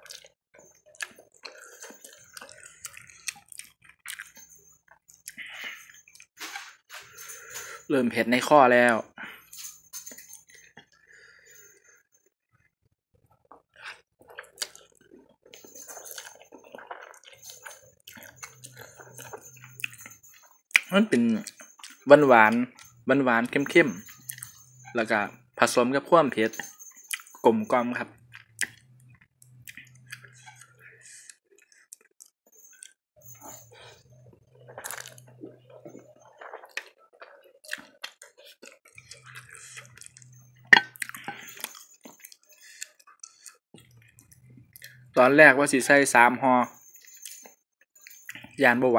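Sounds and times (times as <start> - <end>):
wet chewing mouth sounds: 0.0 - 0.3, 0.9 - 6.4, 13.5 - 22.0, 22.7 - 24.6, 28.2 - 45.2.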